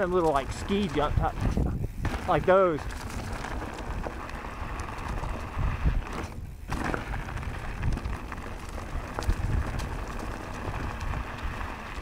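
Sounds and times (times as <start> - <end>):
bike thumps and rattles: 0.0 - 12.0
tyre and wind rumble: 0.0 - 12.0.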